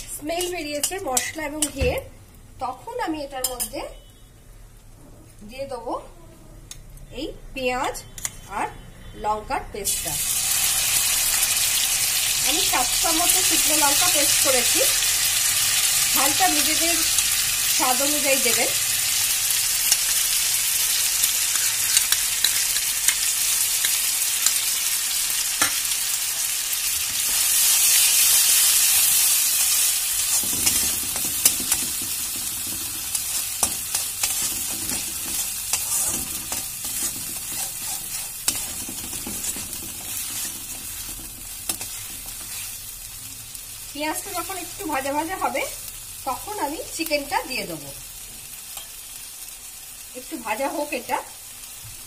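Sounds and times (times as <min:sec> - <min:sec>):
paste sizzling in hot oil: 0:09.9 - 0:52.0
spatula scraping and tapping pan: 0:30.3 - 0:42.8.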